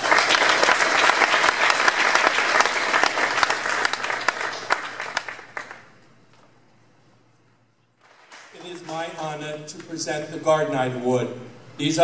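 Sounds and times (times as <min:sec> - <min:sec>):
audience applauding: 0:00.0 - 0:06.0, 0:08.0 - 0:09.2.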